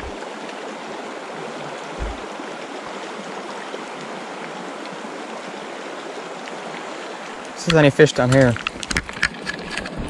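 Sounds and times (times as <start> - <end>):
creek water running over gravel: 0.0 - 10.0
low thump: 2.0 - 2.2.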